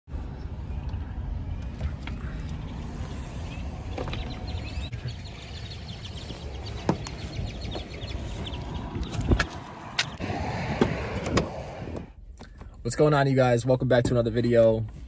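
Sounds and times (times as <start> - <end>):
birds chirping: 0.1 - 11.1
low outdoor rumble: 0.1 - 15.0.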